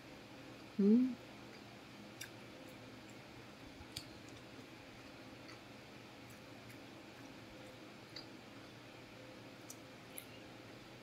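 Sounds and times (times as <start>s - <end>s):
person chewing food: 1.5s - 8.6s.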